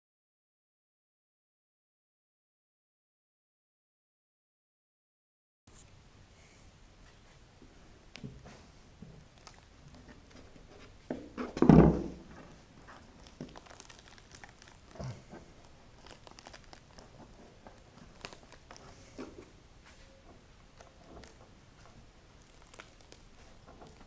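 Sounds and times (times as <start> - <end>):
crinkling and tearing handling: 9.2 - 10.9, 12.8 - 19.5, 20.7 - 24.0.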